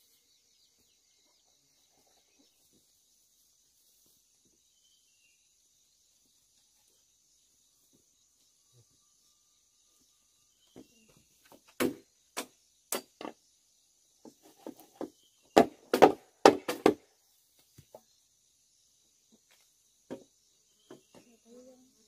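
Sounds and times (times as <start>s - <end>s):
machete chopping bamboo: 11.6s - 13.3s, 15.0s - 17.0s.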